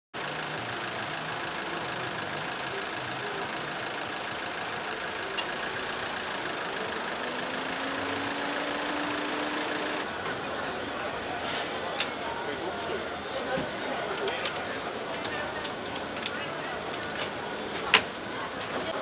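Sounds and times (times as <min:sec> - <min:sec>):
idling vehicle engines: 0:00.2 - 0:19.0
engine note rising in pitch: 0:01.6 - 0:10.1.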